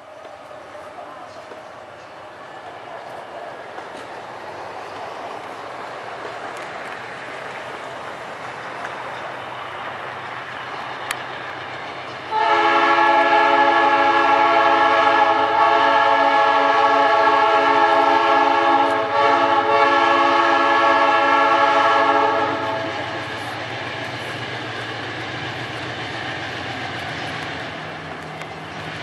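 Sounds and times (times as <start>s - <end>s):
locomotive air horn blast: 12.3s - 23.0s
locomotive engine running: 20.9s - 29.0s.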